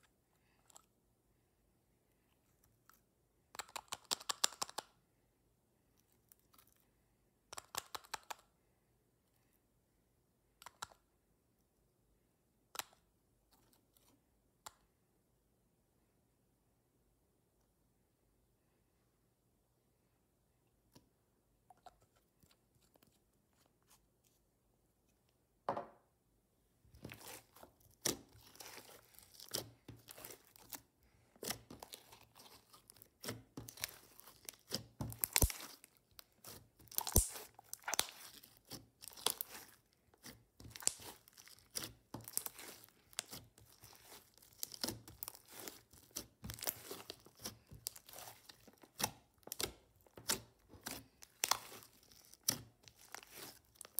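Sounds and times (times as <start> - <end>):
slime crackling and popping: 31.4 - 53.9.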